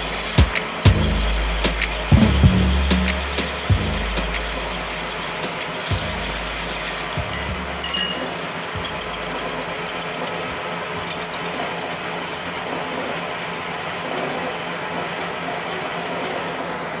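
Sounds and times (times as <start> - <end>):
metal lathe machining: 4.4 - 17.0.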